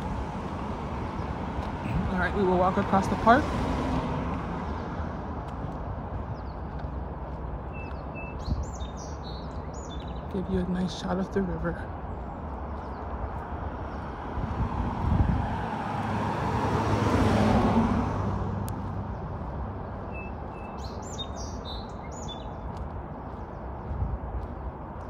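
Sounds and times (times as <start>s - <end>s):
bird chirps: 7.7s - 10.4s, 20.1s - 22.6s
car driving past: 13.9s - 19.5s.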